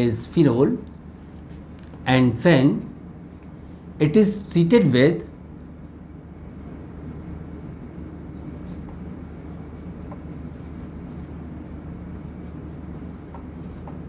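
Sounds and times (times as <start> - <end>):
steady low hum: 0.0 - 14.0
marker writing on whiteboard: 8.3 - 14.0.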